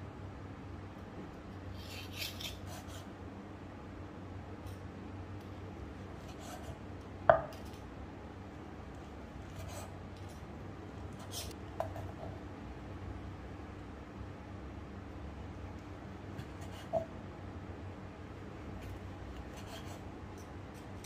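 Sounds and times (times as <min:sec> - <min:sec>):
low steady hum: 0:00.0 - 0:21.0
knock on cutting board: 0:07.3 - 0:07.5.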